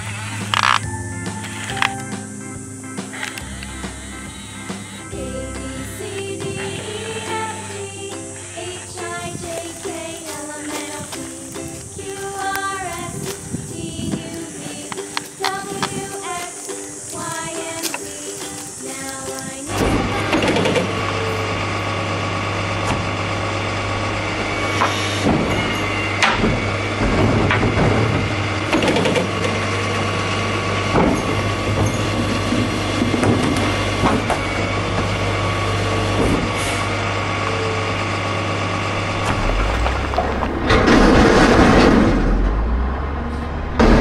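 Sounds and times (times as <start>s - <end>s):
garbage truck engine running: 0.0s - 44.0s
trash tumbling into hopper: 19.4s - 37.4s, 38.8s - 43.1s
knocks and rattles: 24.8s - 30.0s, 30.6s - 35.3s
loud rushing noise: 36.2s - 44.0s.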